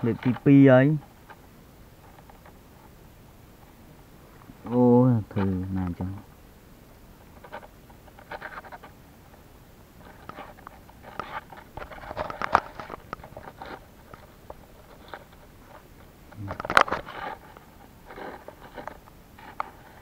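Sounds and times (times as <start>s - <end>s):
scratching at dry soil: 7.2s - 20.0s.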